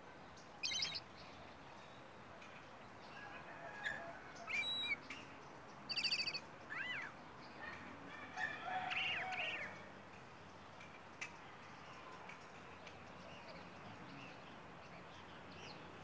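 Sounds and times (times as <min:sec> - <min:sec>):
songbird whistling phrases: 0:00.6 - 0:01.0, 0:04.5 - 0:05.0, 0:05.9 - 0:07.1.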